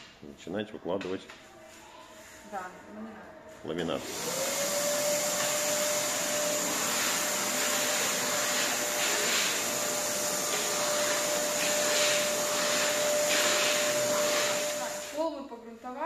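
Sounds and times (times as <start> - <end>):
vacuum cleaner motor whine: 3.7 - 15.3
nozzle drawn over concrete floor: 5.2 - 15.2.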